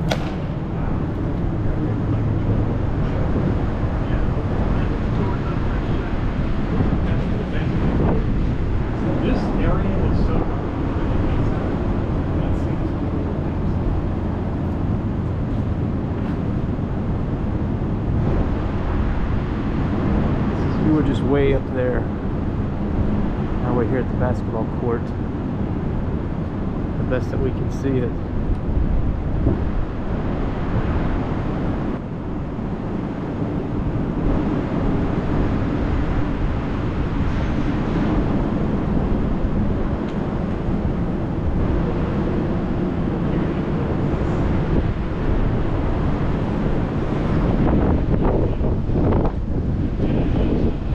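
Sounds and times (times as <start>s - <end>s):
low rumble: 0.0s - 21.1s
faint hum: 0.0s - 50.9s
low rumbling noise: 0.0s - 50.9s.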